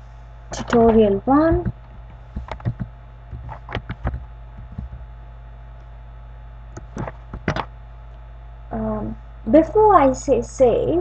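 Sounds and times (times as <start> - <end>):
low mains hum: 0.0 - 11.0
keyboard keystrokes: 2.4 - 5.0, 6.8 - 7.7.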